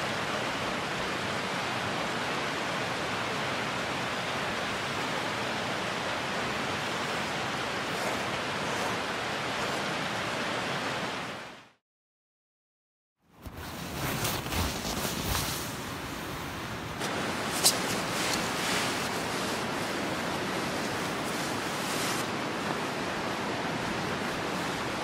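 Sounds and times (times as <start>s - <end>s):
steady rushing noise: 0.0s - 11.8s.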